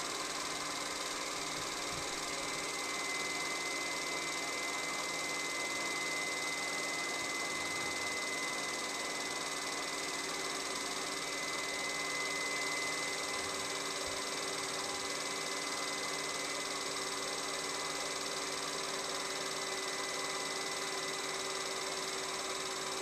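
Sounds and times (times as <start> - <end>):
film projector whirring: 0.0 - 23.0.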